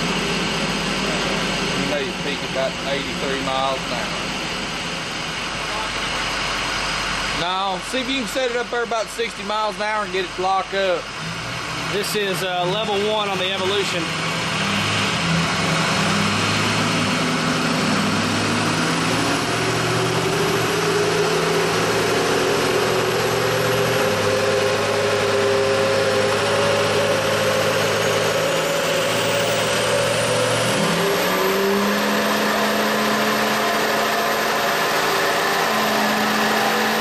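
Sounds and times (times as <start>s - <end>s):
diesel engine revving under load: 0.0s - 37.0s.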